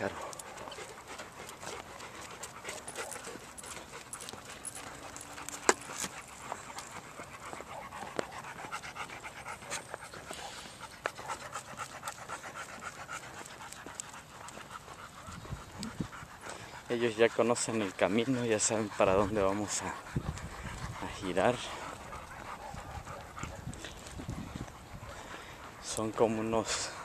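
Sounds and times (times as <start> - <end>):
dog panting: 0.0 - 27.0.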